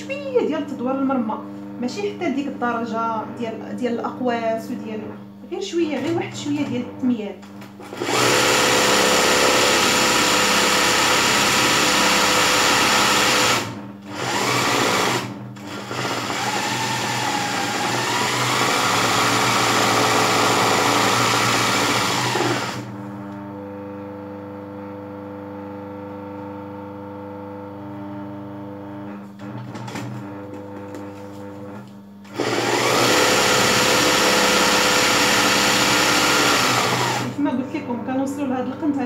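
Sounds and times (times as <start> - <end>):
sewing machine stitching: 7.8 - 22.9, 32.3 - 37.4.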